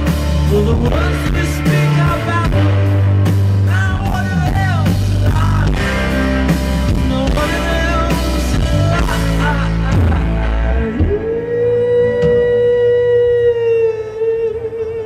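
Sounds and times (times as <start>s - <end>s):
steady drum beat: 0.0s - 11.4s
bass guitar: 0.0s - 15.0s
electric guitar: 0.0s - 15.0s
man singing: 0.0s - 15.0s.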